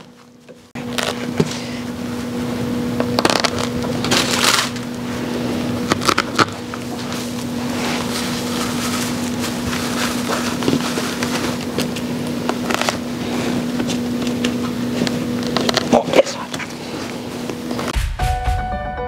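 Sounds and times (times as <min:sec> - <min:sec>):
steady hum and hiss: 0:00.0 - 0:18.0
dry moss rustling and crackling: 0:03.1 - 0:17.5.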